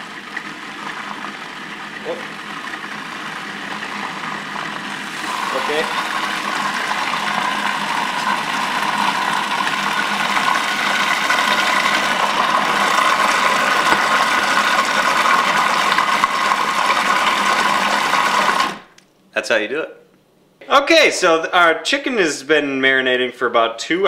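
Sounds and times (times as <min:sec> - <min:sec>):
food processor motor whine: 0:00.0 - 0:19.0.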